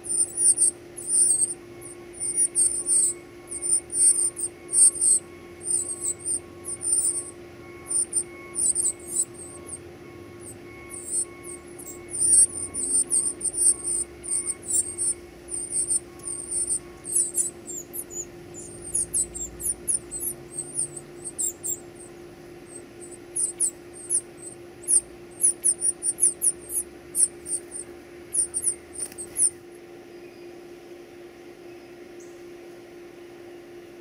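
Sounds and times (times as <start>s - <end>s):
nestlings squeaky begging calls: 0.0s - 29.6s.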